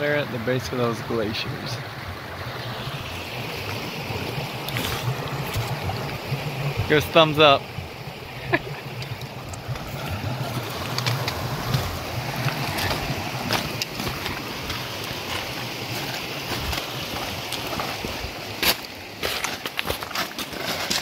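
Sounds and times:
stream rushing: 0.0s - 21.0s
footsteps crunching on rock: 4.6s - 6.1s, 9.7s - 21.0s.

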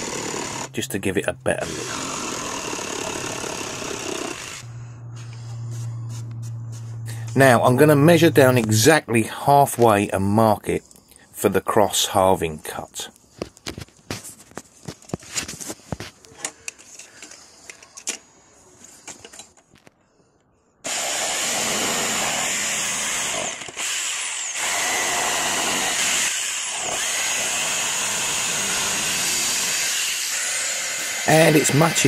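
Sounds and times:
jigsaw cutting timber: 0.0s - 0.8s, 1.6s - 4.7s, 20.8s - 32.0s.

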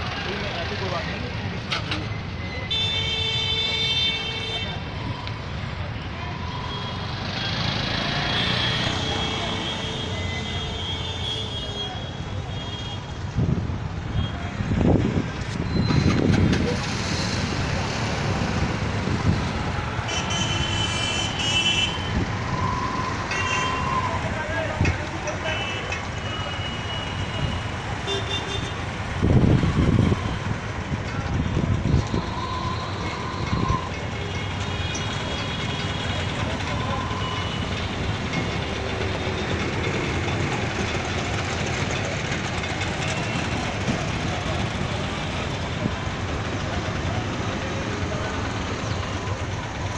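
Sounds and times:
traffic rumble: 0.0s - 49.9s
engines idling: 29.2s - 49.9s.

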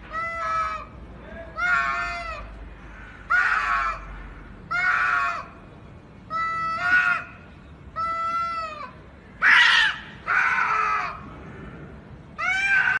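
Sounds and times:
cats yowling: 8.0s - 11.2s, 12.4s - 13.0s.

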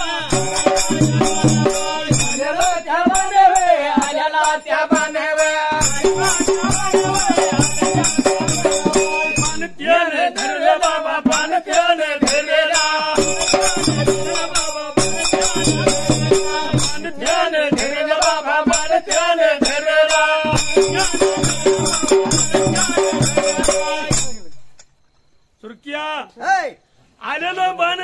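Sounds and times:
men singing together: 0.0s - 24.5s
dhol drumming: 0.0s - 24.7s
hand cymbals clashing: 4.4s - 9.8s, 20.2s - 24.8s.

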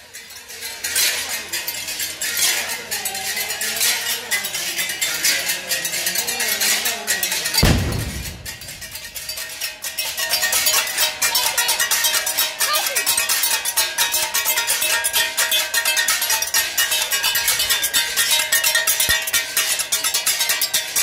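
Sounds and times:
metal percussion clinking: 0.2s - 21.0s
loud low thump: 7.6s - 9.3s.

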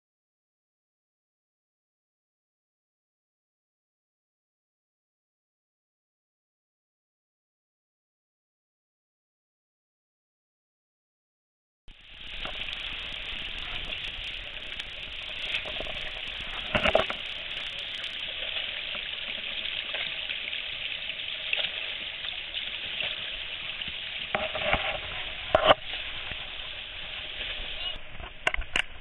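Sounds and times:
water splashing down cascade: 11.9s - 29.0s.

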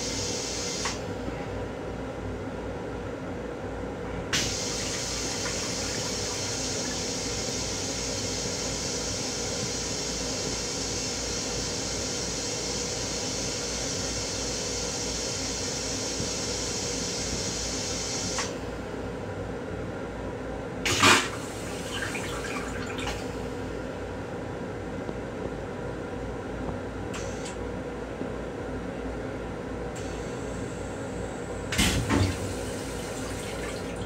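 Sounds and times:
water running from tap: 4.4s - 7.6s, 20.9s - 23.4s, 32.0s - 34.0s.

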